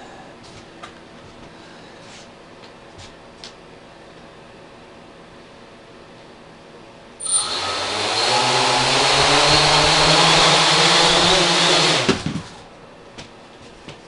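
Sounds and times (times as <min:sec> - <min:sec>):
quadcopter motors buzzing: 0:07.2 - 0:12.2.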